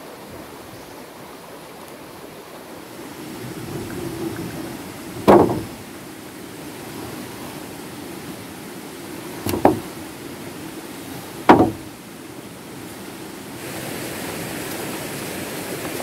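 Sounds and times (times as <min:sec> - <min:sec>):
steady rushing noise: 0:02.8 - 0:16.0
hard knock: 0:05.2 - 0:05.8, 0:09.5 - 0:09.9, 0:11.5 - 0:11.9.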